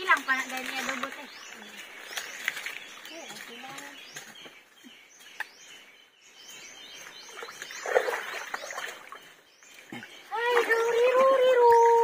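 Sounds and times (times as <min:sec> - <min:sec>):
water splashing and sloshing: 0:00.0 - 0:04.5, 0:06.9 - 0:12.0
birds chirping: 0:00.0 - 0:12.0.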